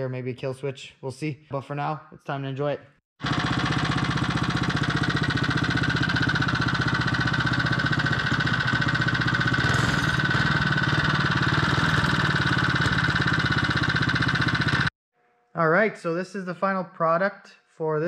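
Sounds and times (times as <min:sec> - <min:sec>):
small engine idling: 0:03.2 - 0:14.9.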